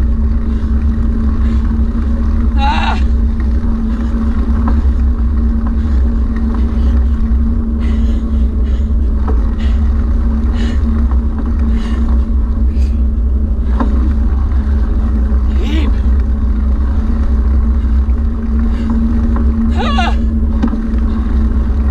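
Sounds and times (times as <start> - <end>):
wind buffeting microphone: 0.0 - 21.9
small motor humming: 12.7 - 21.9.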